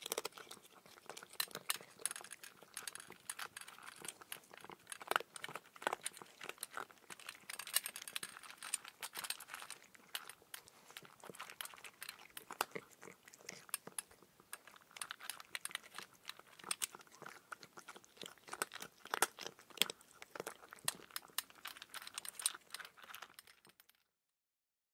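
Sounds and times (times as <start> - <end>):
crisp crunching and clicking: 0.0 - 24.1.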